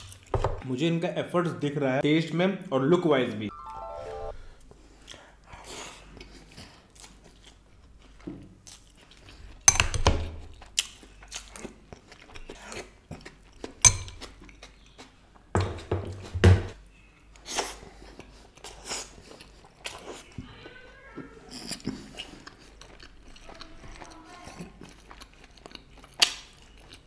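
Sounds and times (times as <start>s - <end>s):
chewing and wet mouth sounds: 5.0s - 15.5s, 17.3s - 27.0s.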